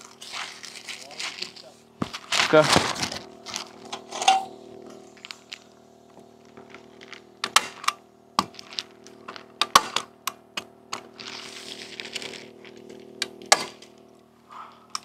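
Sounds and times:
plastic sheet rustling: 0.0s - 3.8s.

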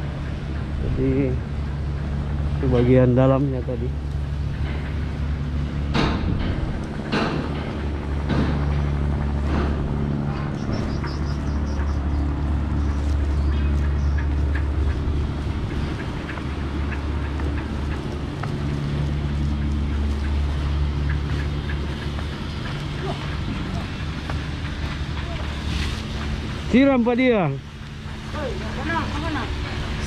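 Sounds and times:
diesel engine droning: 0.0s - 30.0s.

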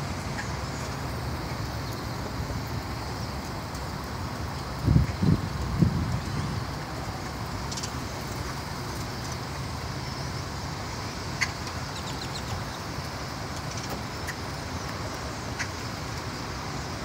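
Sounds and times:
highway traffic noise: 0.0s - 17.0s.

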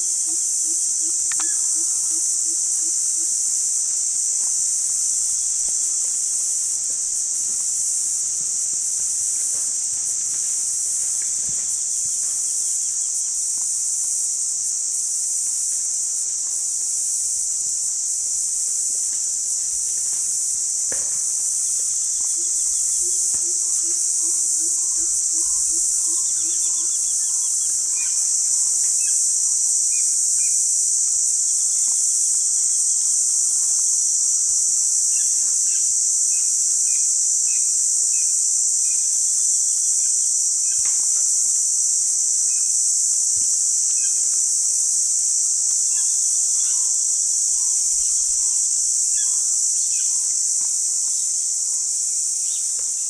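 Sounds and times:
high-pitched insects droning: 0.0s - 53.0s.

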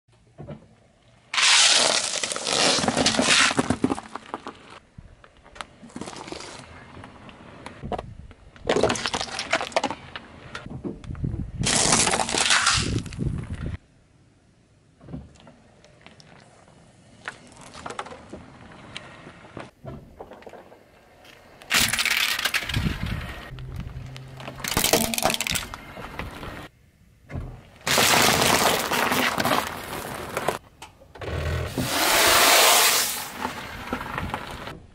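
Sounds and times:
candies crunching under tyre: 1.3s - 4.8s, 5.8s - 6.8s, 8.6s - 10.2s, 11.6s - 13.6s, 21.7s - 26.5s, 27.8s - 30.6s
plastic bottles crackling: 23.8s - 26.4s, 27.9s - 30.6s.

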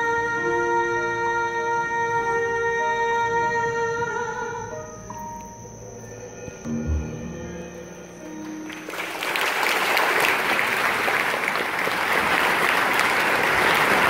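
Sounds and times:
held notes of song accompaniment: 0.0s - 9.8s
audience applause: 8.4s - 14.0s.

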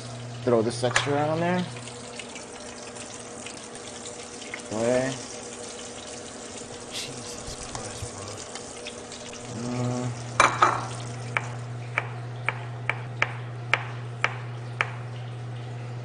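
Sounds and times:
fish sizzling in a frying pan: 0.0s - 11.8s
low steady hum: 0.0s - 16.0s.

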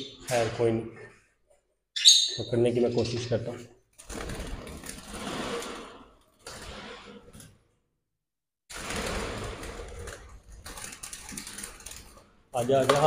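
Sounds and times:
rattling in wire cage: 8.7s - 13.0s.

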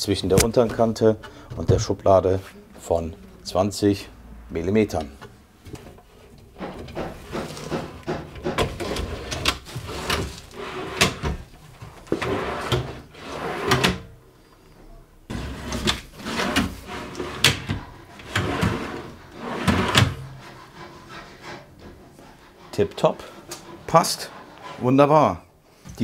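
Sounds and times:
drawer slides rolling: 5.7s - 14.1s, 15.3s - 25.0s.

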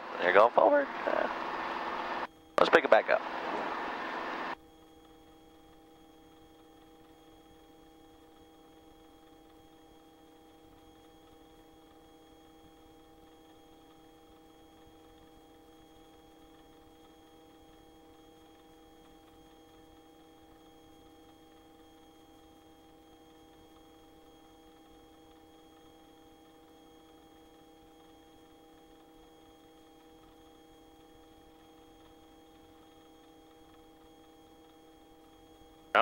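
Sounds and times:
faint electrical hum: 0.0s - 36.0s.

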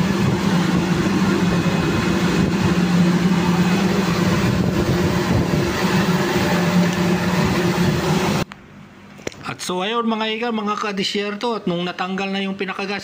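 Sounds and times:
plant machinery humming: 0.0s - 8.5s.

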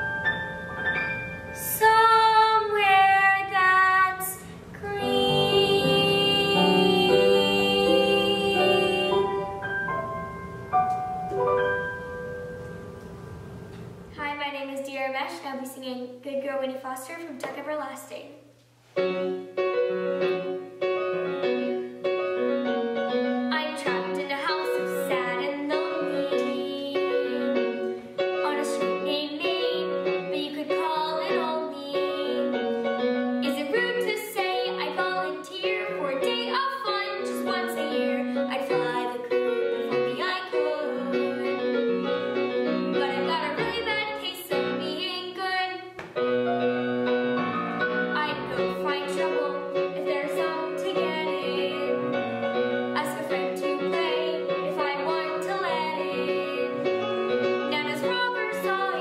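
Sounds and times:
piano accompaniment: 0.0s - 14.2s, 18.9s - 59.0s
girl singing: 1.6s - 9.6s, 23.5s - 32.6s, 33.4s - 41.7s, 43.0s - 46.0s, 48.1s - 52.0s, 53.0s - 56.9s, 57.7s - 59.0s.

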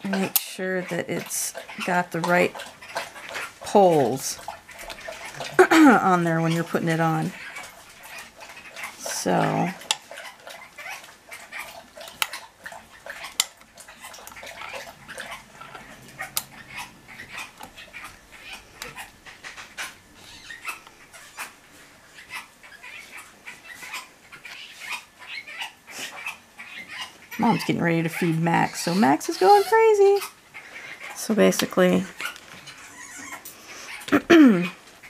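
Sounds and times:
dog whimpering: 32.2s - 34.8s.

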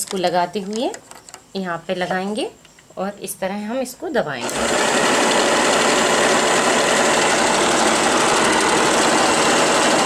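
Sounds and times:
sewing machine running: 4.4s - 10.0s.

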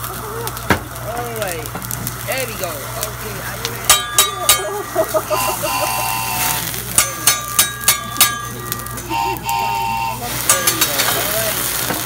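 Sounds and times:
background chatter of diners: 0.0s - 12.0s
metal utensils clanking on griddle: 1.7s - 12.0s.

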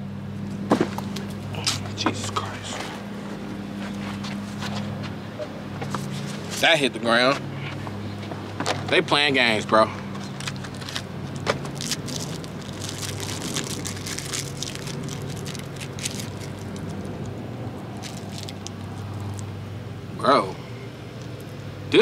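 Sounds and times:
steady low hum: 0.0s - 22.0s
candy wrapper crinkling: 10.4s - 19.5s.

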